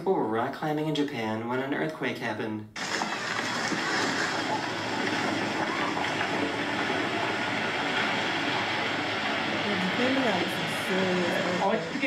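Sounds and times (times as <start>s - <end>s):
rockfall rumbling roar: 2.8s - 12.0s.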